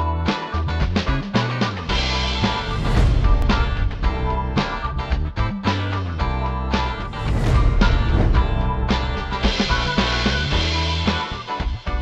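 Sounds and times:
upbeat intro music: 1.9s - 11.3s.

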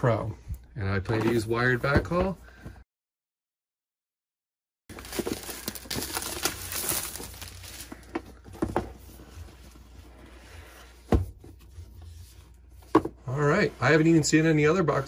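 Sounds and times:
plastic shrink-wrap crinkling: 4.9s - 8.1s.

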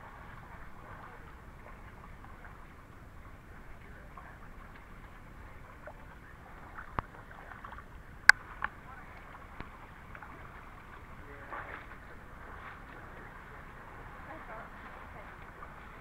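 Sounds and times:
trickling water: 0.0s - 16.0s
feet splashing in a creek: 4.4s - 16.0s.

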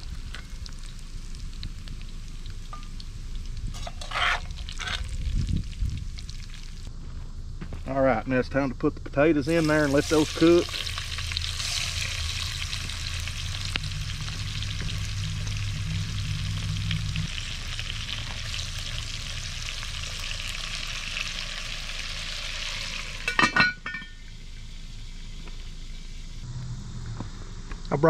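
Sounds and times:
potatoes sizzling in grease: 0.0s - 6.9s, 9.4s - 23.4s
cast-iron lid clanking: 3.8s - 4.5s, 23.2s - 24.2s.

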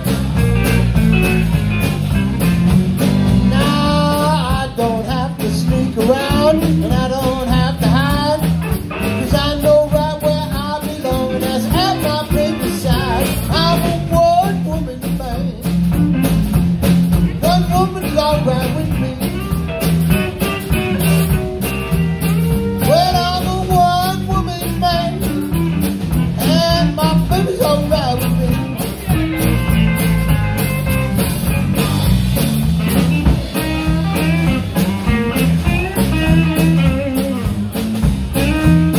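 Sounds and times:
bass guitar: 0.0s - 38.9s
drum kit: 0.0s - 38.9s
electric guitar: 0.0s - 38.9s
man singing: 3.3s - 16.0s, 17.3s - 19.6s, 22.8s - 25.6s, 26.2s - 29.1s.

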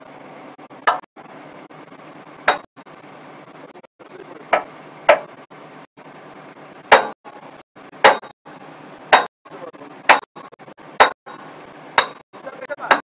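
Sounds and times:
steel chisel striking rock: 2.5s - 2.7s, 6.9s - 7.2s, 8.0s - 8.3s, 9.1s - 9.3s, 10.1s - 10.3s, 11.0s - 12.2s.

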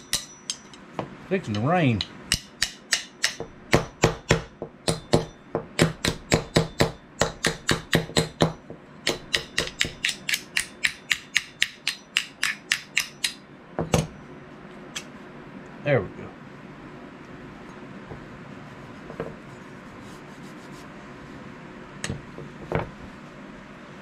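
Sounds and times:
hammer tapping on metal: 0.0s - 14.1s.

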